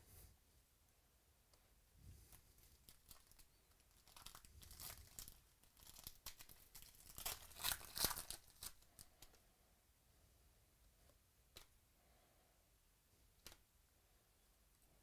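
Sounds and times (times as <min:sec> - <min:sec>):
foil wrapper tearing: 0:02.8 - 0:09.1.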